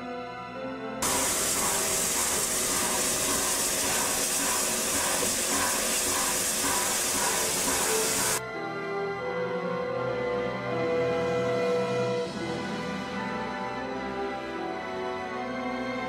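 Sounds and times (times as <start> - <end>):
steam hissing: 1.0 - 8.4.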